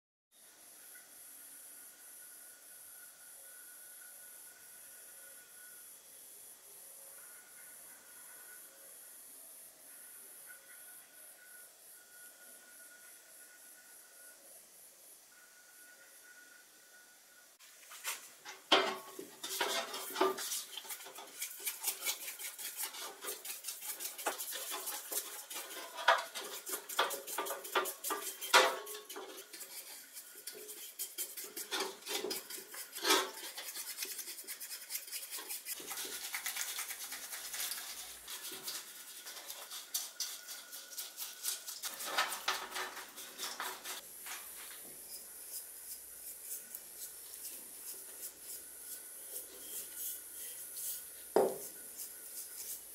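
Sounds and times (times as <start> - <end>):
metal can clinking: 18.4 - 21.4, 24.2 - 29.6
brush scrubbing can in water: 18.8 - 44.0.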